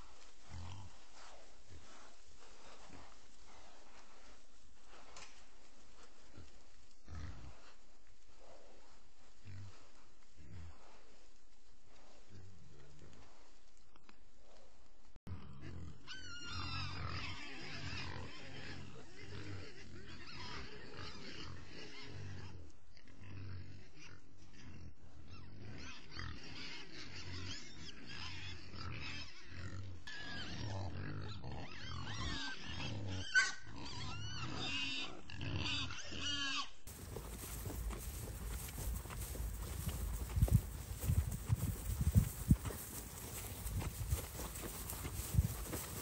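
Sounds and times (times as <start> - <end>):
hogs squealing: 16.0 - 18.8, 31.5 - 46.0
hogs grunting: 25.6 - 46.0.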